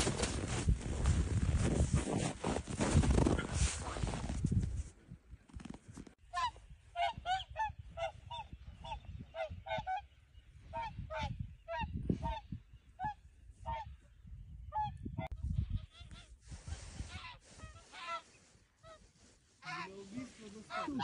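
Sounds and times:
geese honking: 17.1 - 21.0.

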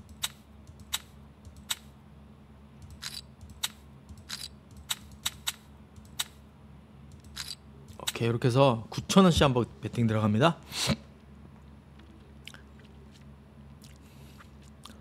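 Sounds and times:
sharp clicks: 0.0 - 1.9, 2.8 - 6.4
low steady hum: 0.0 - 15.0.

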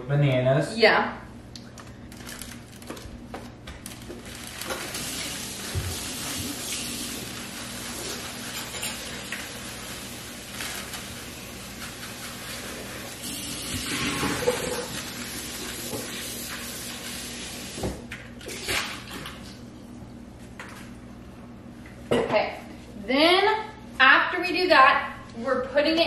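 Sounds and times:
food rustling and crinkling: 1.7 - 13.2.

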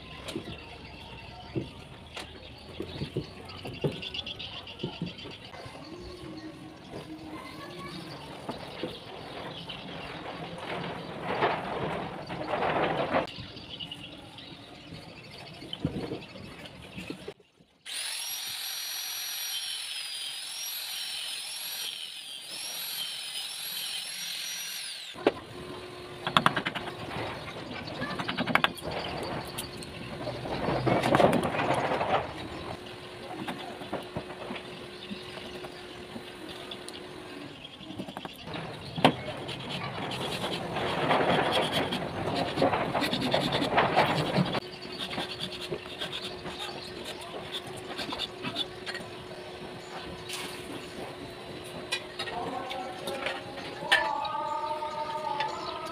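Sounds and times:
angle grinder cutting wood: 17.9 - 54.2
hand file rasping on steel blade: 39.4 - 48.7.

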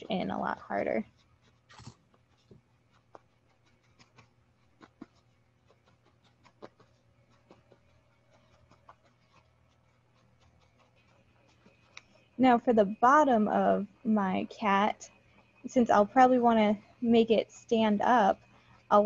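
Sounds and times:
low steady hum: 0.0 - 19.0
felting needle stabbing into foam: 1.1 - 12.2.

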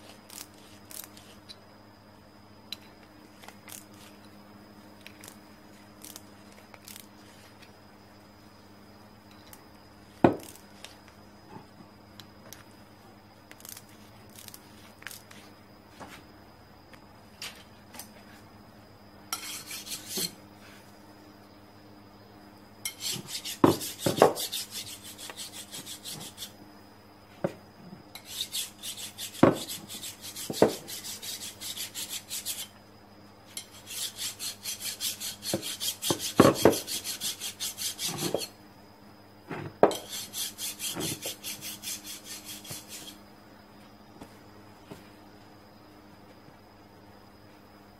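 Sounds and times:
scratchy rasping of cloth: 22.9 - 26.5, 28.2 - 32.7, 33.6 - 38.5, 40.0 - 43.2.

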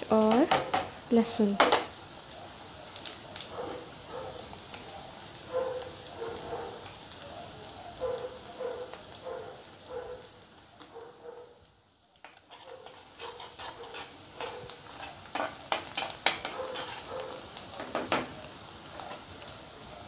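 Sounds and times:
vegetables sizzling in hot oil: 0.0 - 20.0
metal spatula scraping a pan: 12.2 - 17.2.

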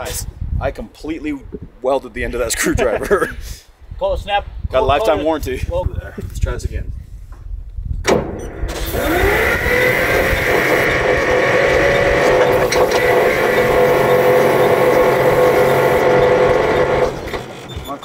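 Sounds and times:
starter motor cranking engine: 8.7 - 18.0.

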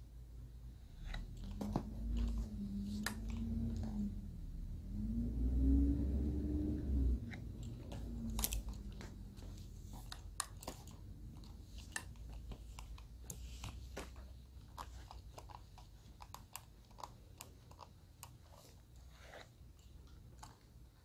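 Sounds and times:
low steady hum: 0.0 - 21.0
small clicks and crackles: 7.4 - 20.8.

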